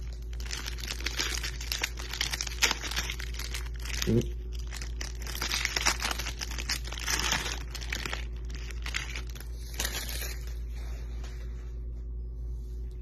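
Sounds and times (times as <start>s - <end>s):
plastic wrapping crinkling and tearing: 0.0s - 11.0s.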